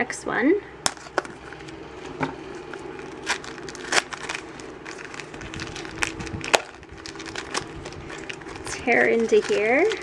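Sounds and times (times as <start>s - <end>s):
crinkly foil bag: 2.6s - 10.0s
plastic wrapping crackling: 2.6s - 10.0s.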